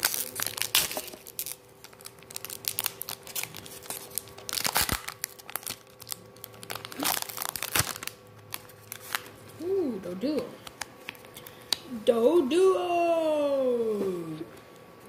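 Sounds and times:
foil wrapper crinkling: 0.0s - 9.5s.

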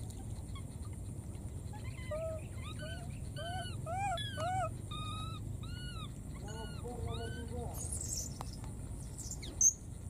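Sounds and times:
baby monkey coo calls: 1.7s - 8.4s.

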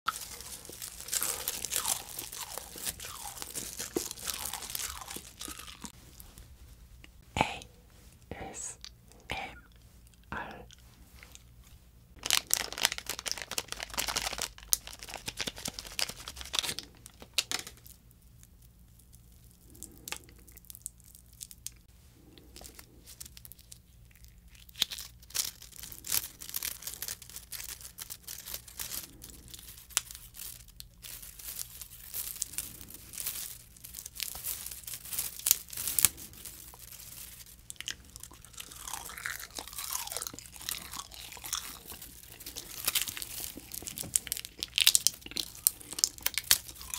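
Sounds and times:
tape being bitten and chewed: 0.1s - 6.3s, 12.4s - 46.9s.

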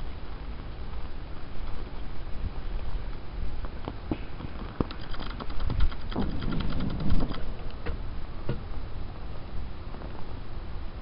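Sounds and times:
small crackles and pops: 2.8s - 7.8s.

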